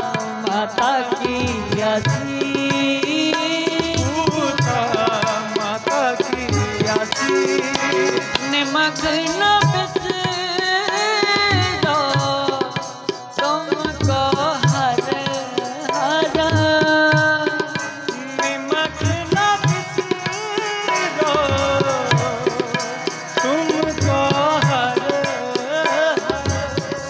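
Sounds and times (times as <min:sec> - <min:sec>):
harmonium tones: 0:00.0 - 0:27.0
man singing: 0:00.0 - 0:27.0.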